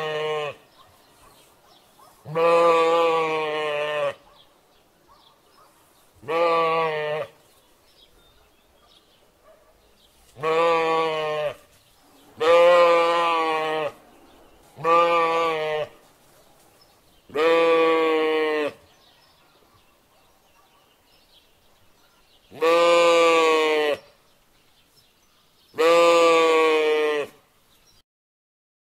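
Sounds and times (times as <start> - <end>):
sheep bleating: 0.0 - 0.7, 2.2 - 4.2, 6.2 - 7.4, 10.4 - 11.7, 12.4 - 14.0, 14.8 - 16.1, 17.3 - 18.8, 22.5 - 24.1, 25.8 - 27.4.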